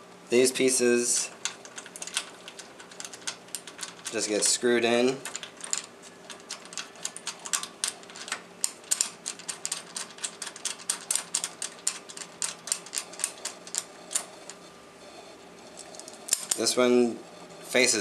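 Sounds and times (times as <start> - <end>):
small metal clicks: 1.4 - 4.4, 5.2 - 14.6, 15.8 - 16.7.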